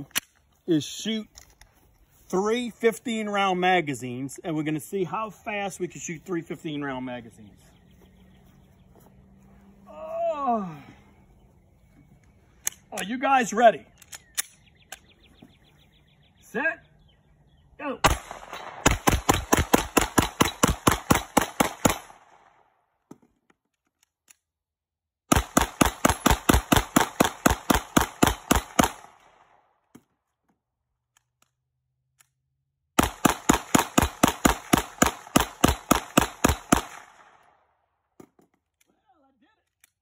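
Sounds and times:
pistol shots in rapid strings: 18.1s - 22.3s, 33.0s - 37.3s.

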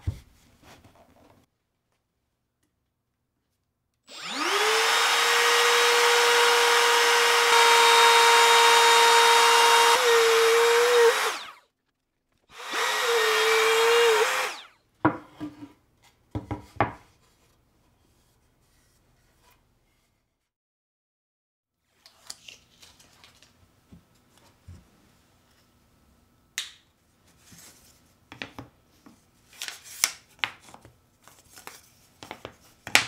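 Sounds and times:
trim router whining cutting plywood: 4.1s - 11.6s, 12.5s - 14.7s.

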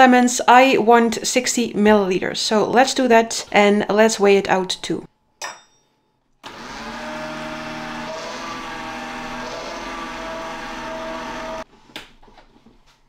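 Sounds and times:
electric citrus press running: 6.4s - 11.6s.

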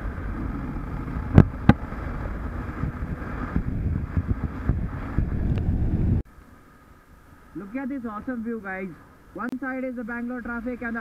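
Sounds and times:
motorcycle engine: 0.0s - 6.2s
wind on microphone: 0.0s - 6.3s.

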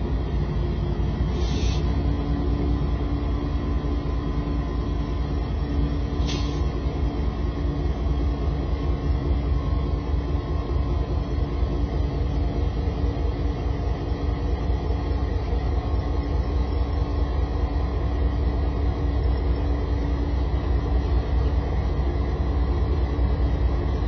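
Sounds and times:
locomotive engines rumbling: 0.0s - 24.0s
short air hisses: 1.3s - 2.0s, 6.2s - 6.7s.

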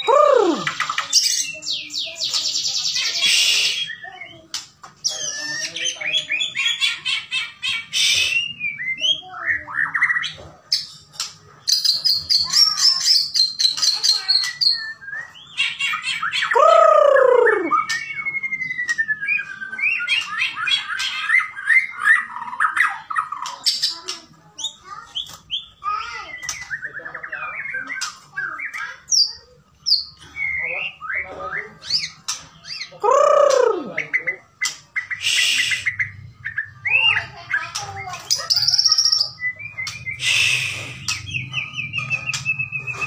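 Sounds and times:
bird singing trills and whistles: 11.7s - 43.0s.

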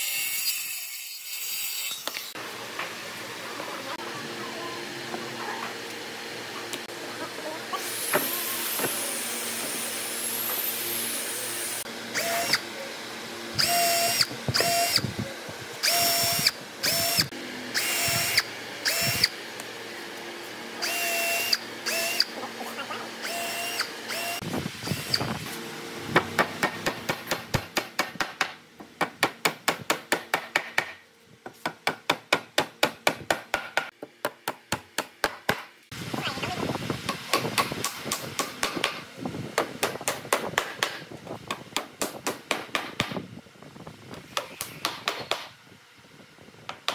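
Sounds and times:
cordless drill boring into wood: 7.8s - 12.7s, 13.6s - 15.0s, 15.8s - 19.4s, 20.8s - 22.4s, 23.2s - 25.3s.

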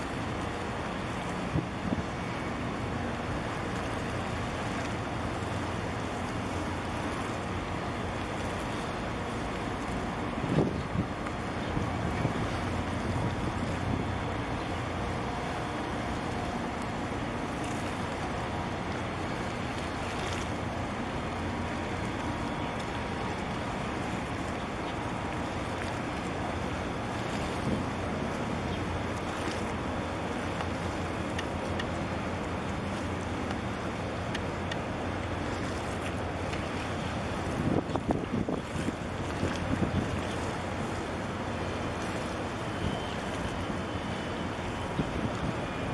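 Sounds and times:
ship low rumble: 0.0s - 45.9s
water lapping: 0.0s - 45.9s
wind on microphone: 1.4s - 2.2s, 10.2s - 14.4s, 27.2s - 28.3s, 37.4s - 40.7s, 44.8s - 45.9s.

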